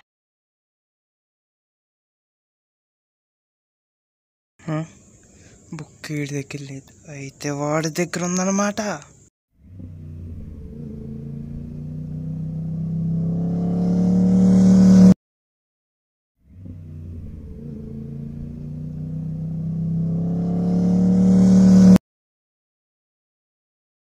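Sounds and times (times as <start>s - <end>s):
motorcycle engine running: 9.6s - 15.2s, 16.5s - 22.0s.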